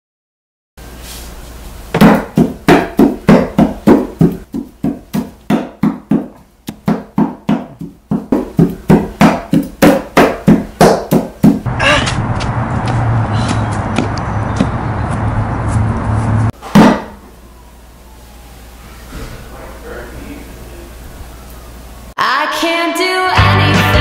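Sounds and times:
doll knocking on wooden table: 2.0 - 11.6.

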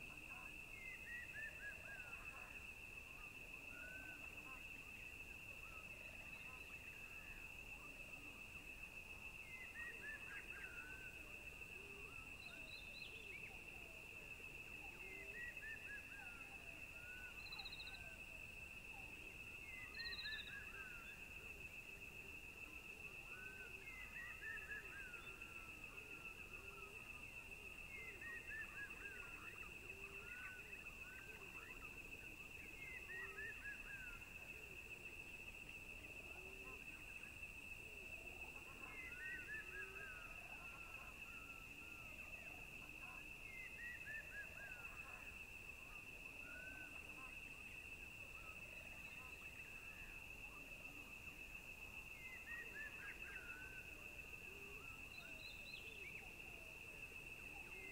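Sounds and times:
high-pitched insect trill: 0.0 - 57.9
bird chirps: 19.7 - 21.2.

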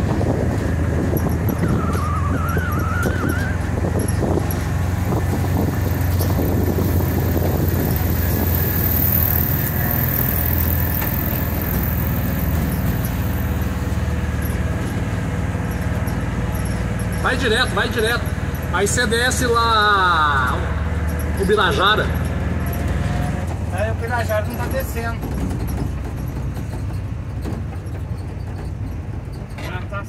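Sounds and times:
bodywork rattles and knocks: 0.0 - 18.7, 20.4 - 30.0
van engine humming: 0.0 - 30.0
wavering squeak: 1.1 - 18.7.

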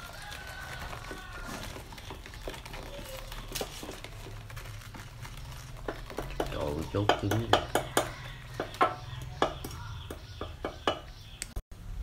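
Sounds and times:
fish flapping in plastic basket: 0.0 - 7.1.

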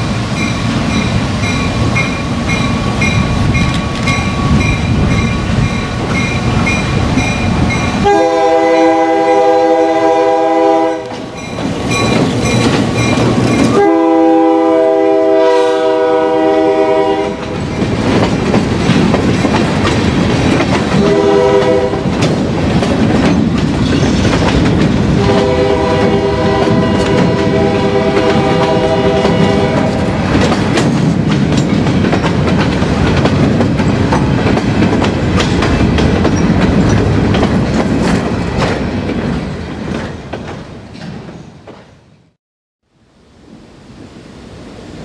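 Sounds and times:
freight train rolling past: 0.0 - 42.3, 43.2 - 45.0
train horn chord: 8.0 - 11.1, 13.7 - 17.5, 21.0 - 22.1, 25.2 - 30.0
steel wheels clicking over rail joints: 11.1 - 13.8, 17.4 - 21.1, 22.0 - 25.2, 28.2 - 41.8.

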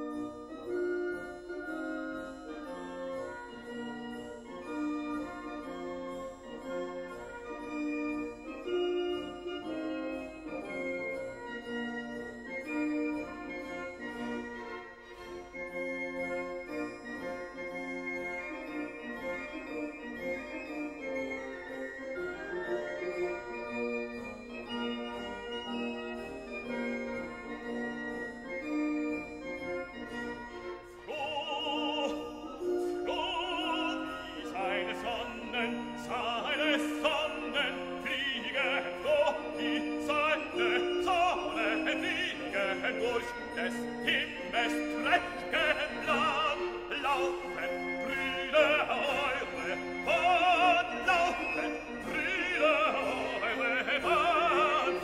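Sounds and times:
operatic voice singing: 31.0 - 55.0.

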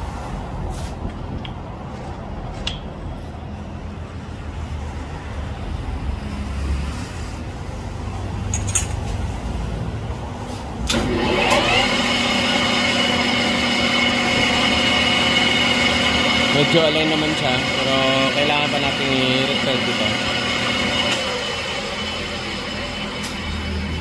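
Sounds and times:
lathe motor whining: 10.8 - 24.0.

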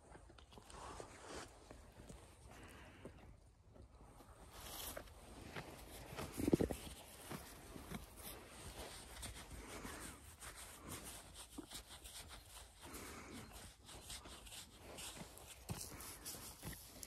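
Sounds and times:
gloved hand rubbing wool: 4.6 - 17.0.

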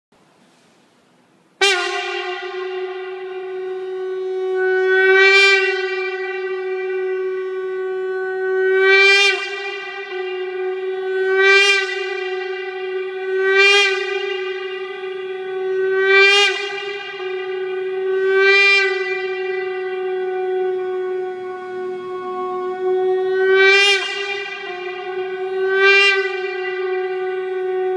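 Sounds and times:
shofar long held note: 1.5 - 27.9.

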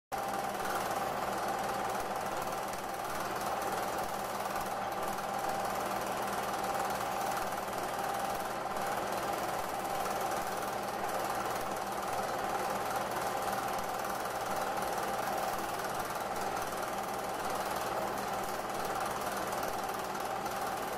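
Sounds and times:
film projector mechanical clatter: 0.2 - 20.9
projector hum: 0.2 - 20.9.

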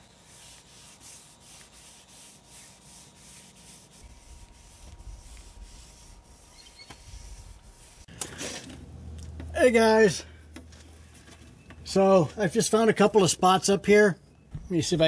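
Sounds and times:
cloth rag rubbing boat hull: 0.0 - 8.8.

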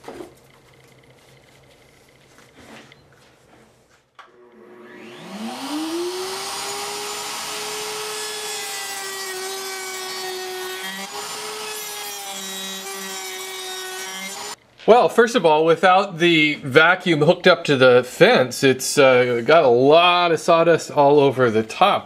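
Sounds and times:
router motor whining: 4.2 - 14.6.

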